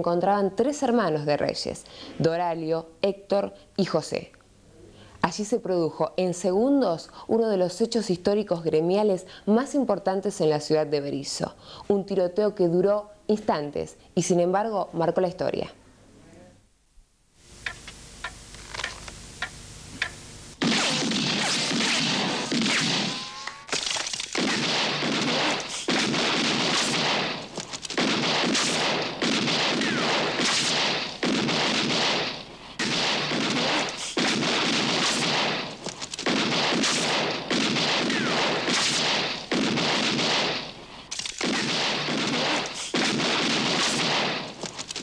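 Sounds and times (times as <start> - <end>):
handgun gunfire bursts: 20.6 - 44.6.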